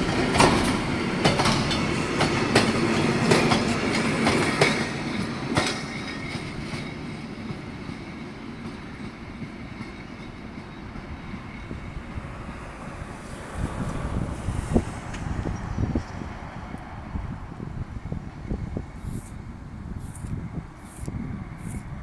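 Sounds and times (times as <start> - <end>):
freight train wagons clattering: 0.0 - 11.7.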